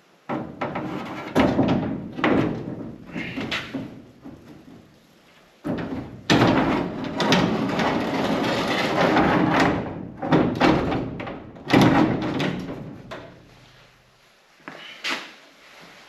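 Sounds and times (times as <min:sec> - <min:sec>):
sliding van door scraping: 0:00.5 - 0:04.2, 0:05.7 - 0:13.1
door clunks: 0:05.7 - 0:08.0, 0:09.0 - 0:13.4.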